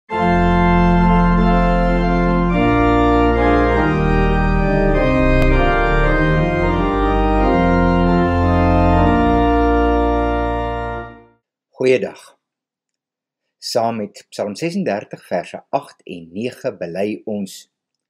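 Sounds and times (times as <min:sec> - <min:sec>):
deep bass line: 0:00.1 - 0:11.2
organ playing sustained chords: 0:00.1 - 0:11.4.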